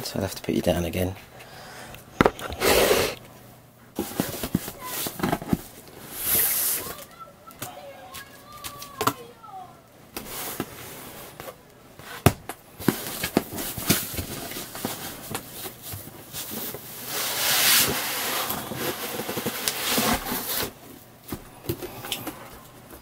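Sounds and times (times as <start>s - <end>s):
cardboard boxes knocking and scraping: 4.0s - 5.7s, 17.8s - 21.9s
cardboard rustling: 4.0s - 7.1s, 10.2s - 23.0s.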